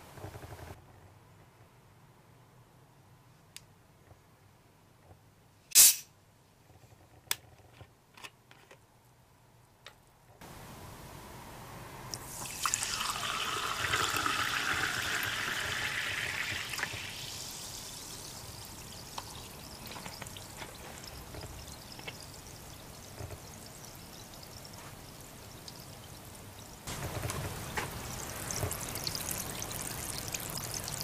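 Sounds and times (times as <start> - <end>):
sparkling water pouring into glass: 12.1 - 26.8, 28.0 - 31.0
water fizzing in glass: 12.2 - 26.1, 28.0 - 31.0.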